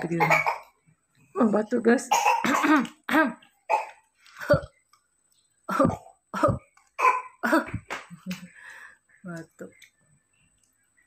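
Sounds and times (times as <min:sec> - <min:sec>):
person coughing: 0:00.2 - 0:00.7, 0:02.1 - 0:03.0.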